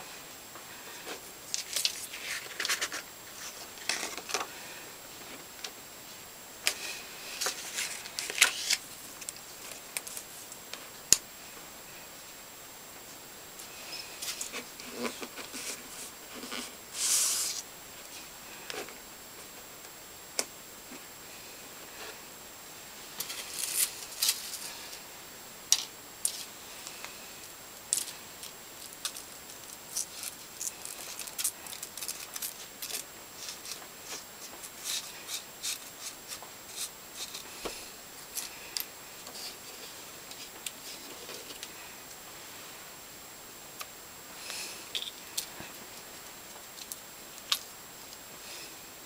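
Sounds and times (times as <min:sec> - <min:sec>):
paper card rustling: 0:01.5 - 0:04.4, 0:07.4 - 0:10.3.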